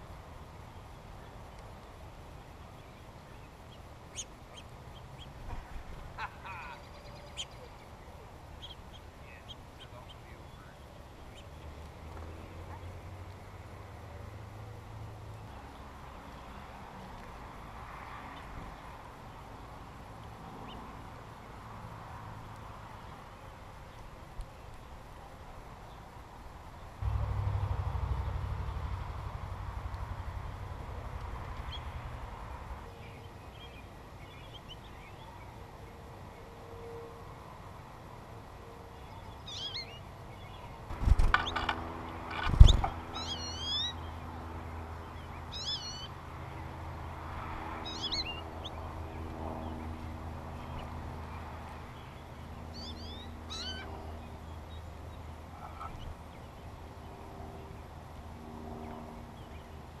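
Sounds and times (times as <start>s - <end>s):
songbirds chirping: 0.0s - 60.0s
low steady hum: 26.7s - 33.7s.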